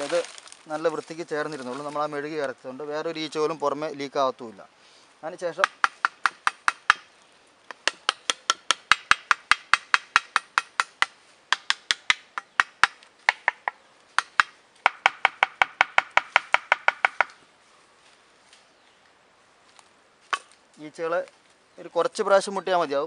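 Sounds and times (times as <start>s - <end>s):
rapid knocking on plastic pipe: 7.8s - 17.3s.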